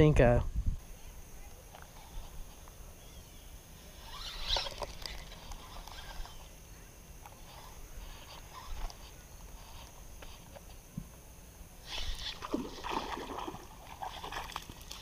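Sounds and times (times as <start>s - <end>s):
reel clicks and rustles: 4.0s - 6.5s, 7.2s - 10.8s.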